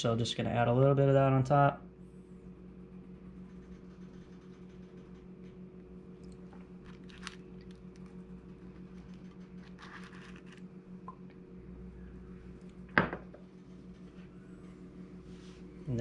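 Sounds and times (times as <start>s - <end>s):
steady low hum: 0.0s - 16.0s
taco shells crackling: 6.2s - 10.8s.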